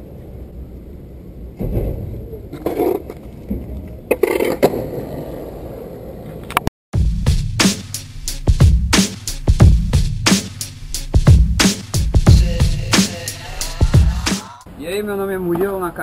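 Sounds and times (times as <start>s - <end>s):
skateboard wheels rolling on concrete: 0.0s - 6.7s
electronic music with beat: 7.0s - 14.7s.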